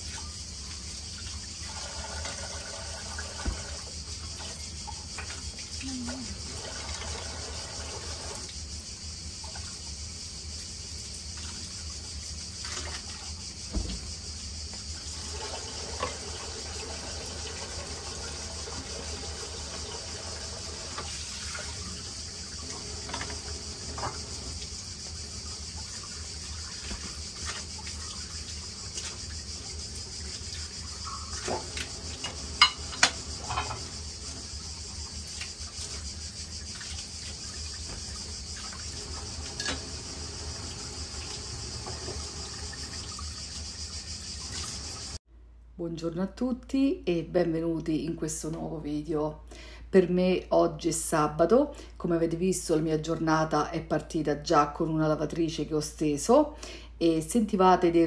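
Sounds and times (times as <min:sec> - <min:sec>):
tap running into a sink: 0:01.8 - 0:03.9, 0:22.7 - 0:24.6, 0:41.1 - 0:43.2
dishes clinking and knocking: 0:31.4 - 0:33.9.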